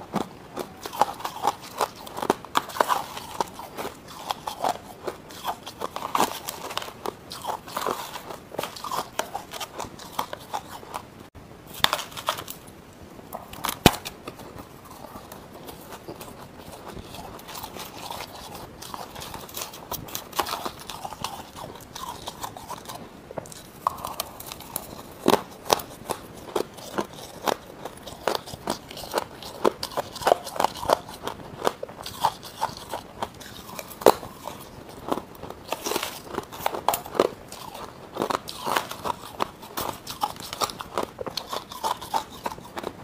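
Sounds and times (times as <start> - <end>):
ice crunching while chewed: 0.0 - 11.1, 11.7 - 12.6, 13.3 - 43.0.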